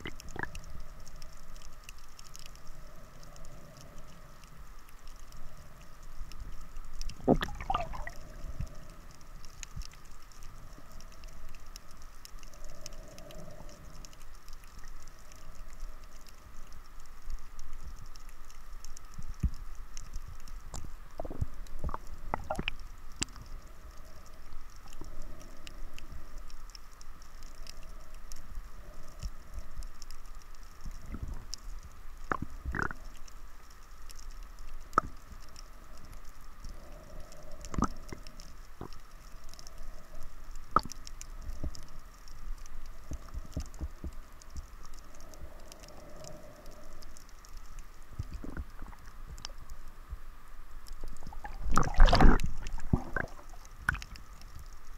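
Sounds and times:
faint steady tone: 0:00.0 - 0:54.9
underwater rumble of moving water: 0:00.0 - 0:54.9
underwater clicks and knocks: 0:07.1 - 0:08.2, 0:51.2 - 0:54.2.

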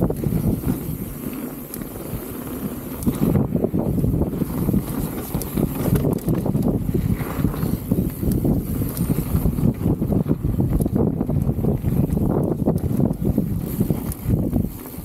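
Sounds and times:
bike knocking and rattling: 0:00.0 - 0:15.0
bike tyres rumbling on dirt: 0:00.0 - 0:15.0.

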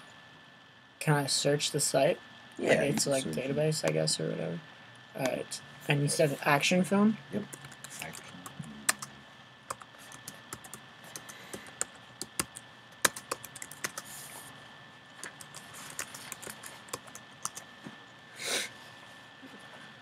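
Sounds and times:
computer keyboard typing: 0:07.5 - 0:09.1, 0:09.7 - 0:14.1, 0:15.2 - 0:17.7.

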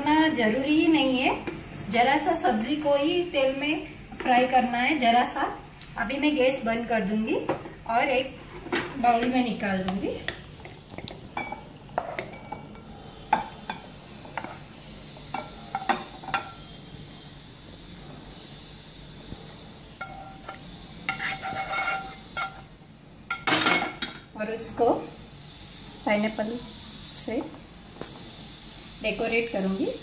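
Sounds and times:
faint sizzle: 0:00.0 - 0:30.0
spatula scraping frying pan: 0:08.2 - 0:16.8, 0:19.9 - 0:23.8.

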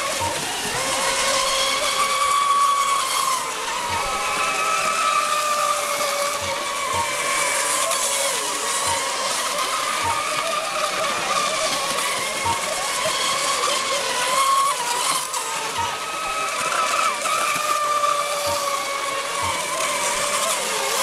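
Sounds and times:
model boat motors whining: 0:00.0 - 0:21.0
spray hissing off hulls: 0:00.0 - 0:21.0.

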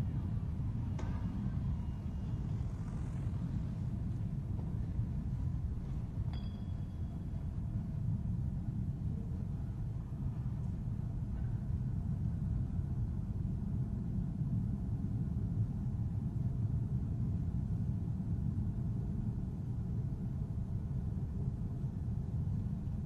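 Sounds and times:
low rumble of city ambience: 0:00.0 - 0:23.0.

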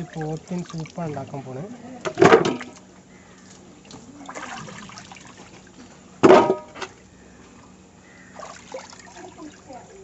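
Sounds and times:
water dripping: 0:00.0 - 0:01.4.

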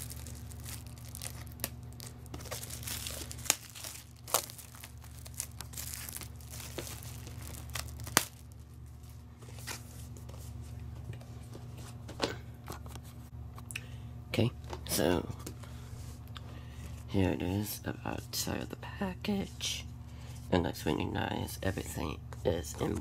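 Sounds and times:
plastic shrink wrap tearing: 0:00.0 - 0:09.2.

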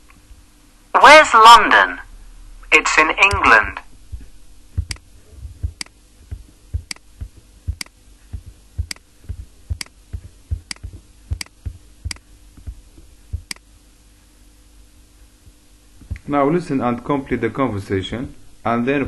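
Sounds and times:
faint steady hum: 0:00.0 - 0:19.0
computer mouse clicking: 0:06.8 - 0:07.1, 0:08.8 - 0:09.0, 0:10.6 - 0:12.2, 0:13.4 - 0:13.7.

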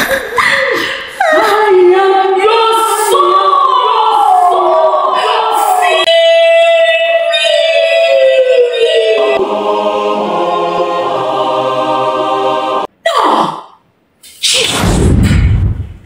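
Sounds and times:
choir-like singing: 0:01.4 - 0:13.0.

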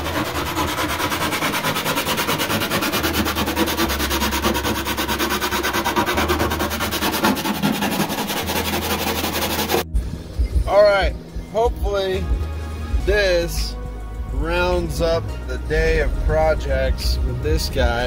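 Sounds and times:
power tool grinding: 0:00.0 - 0:09.8.

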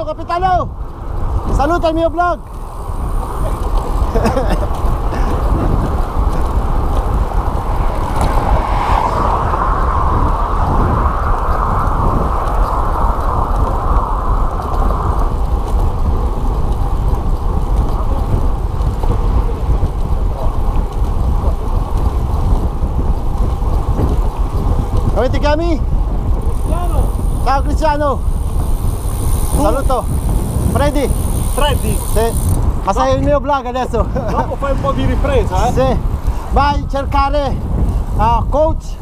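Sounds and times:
wind rush on microphone: 0:00.0 - 0:39.0.

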